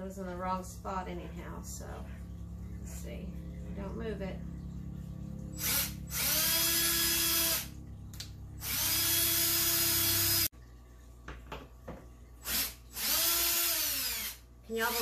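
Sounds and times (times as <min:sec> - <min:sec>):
cordless drill spinning in wood: 0:05.6 - 0:07.7, 0:08.6 - 0:10.5, 0:12.4 - 0:15.0.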